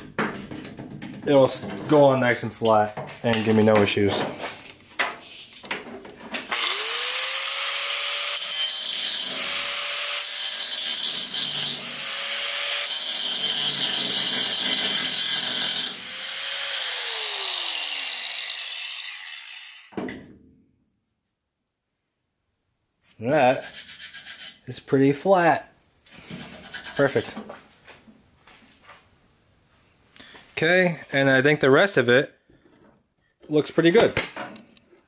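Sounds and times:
angle grinder grinding steel: 6.5s - 19.9s
grinder disc winding down: 6.5s - 19.9s.

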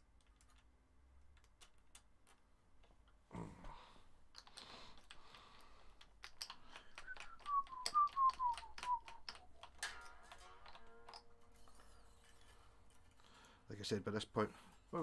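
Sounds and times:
falling whistle-like tone: 7.0s - 9.6s.

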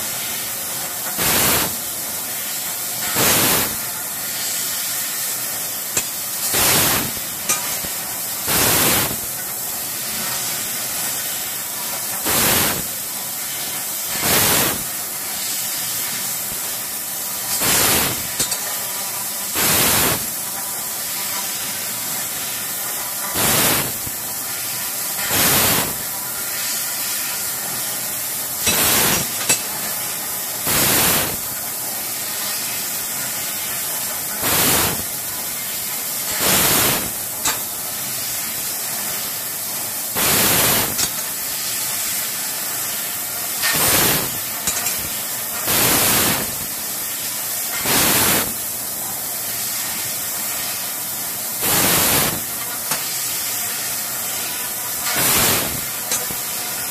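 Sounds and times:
laser cutter hissing: 0.0s - 56.9s
hissing bursts: 1.2s - 1.9s, 3.1s - 11.6s, 12.2s - 13.1s, 14.0s - 16.8s, 17.5s - 18.6s, 19.5s - 20.4s, 23.3s - 24.3s, 25.2s - 26.9s, 28.6s - 29.6s, 30.6s - 31.6s, 34.4s - 35.3s, 36.3s - 37.6s, 40.1s - 46.8s, 47.7s - 48.7s, 49.5s - 56.9s.

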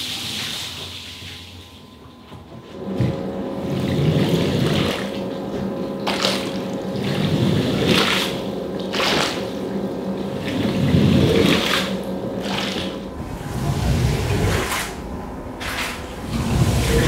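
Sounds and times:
cleaning machinery humming: 0.0s - 17.0s
pressurised water spraying: 6.0s - 17.0s.

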